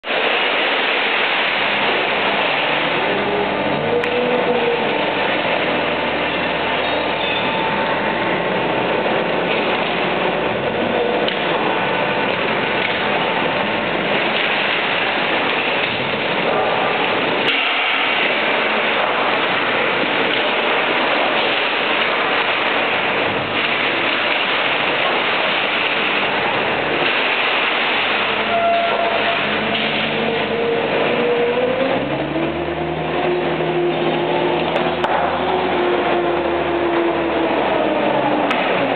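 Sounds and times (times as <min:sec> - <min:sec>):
forklift engine running: 0:00.0 - 0:38.9
steel chain conveyor din: 0:00.0 - 0:38.9.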